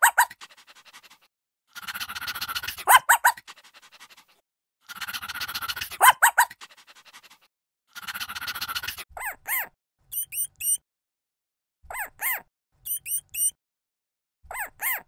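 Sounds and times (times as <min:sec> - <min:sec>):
rodent squeaking: 0:00.0 - 0:00.7, 0:01.7 - 0:03.9, 0:04.8 - 0:07.2, 0:07.9 - 0:10.8, 0:11.9 - 0:13.6, 0:14.5 - 0:15.0
rapid chattering: 0:00.0 - 0:09.0.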